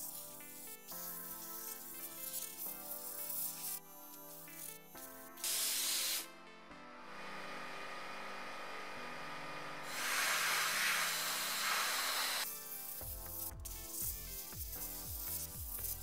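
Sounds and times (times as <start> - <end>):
background music: 0.0 - 9.8, 12.4 - 16.0
abrasive blaster hissing: 9.9 - 12.4.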